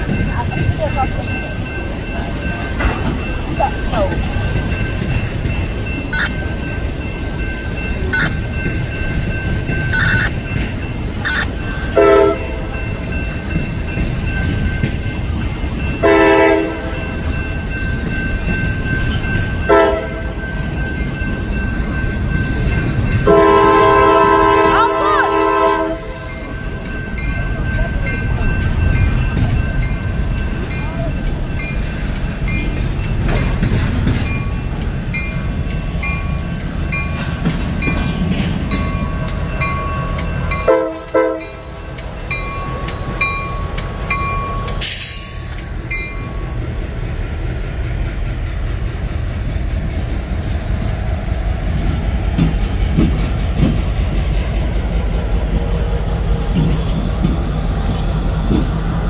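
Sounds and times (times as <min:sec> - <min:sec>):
bell ringing: 0:00.0 - 0:23.6, 0:26.2 - 0:47.6
freight train rumbling: 0:00.0 - 0:59.0
locomotive horn blast: 0:12.0 - 0:12.7, 0:16.0 - 0:17.0, 0:19.7 - 0:20.4, 0:23.2 - 0:26.3, 0:40.6 - 0:41.6.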